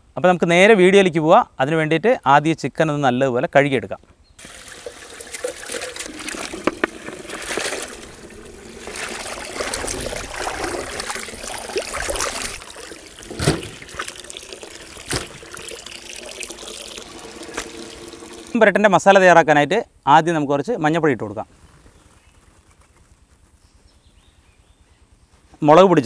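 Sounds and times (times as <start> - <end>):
hands splashing water: 4.4 - 18.6
tap water running into pot: 4.4 - 18.8
sharp thuds: 13.3 - 14.1, 15.0 - 15.5.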